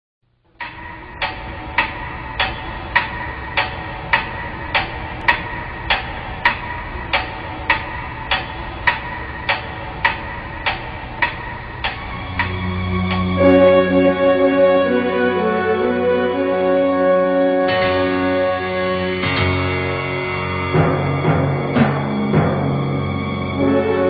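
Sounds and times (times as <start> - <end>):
pendulum clock ticking: 0.5 - 13.4
keyboard music: 12.2 - 24.0.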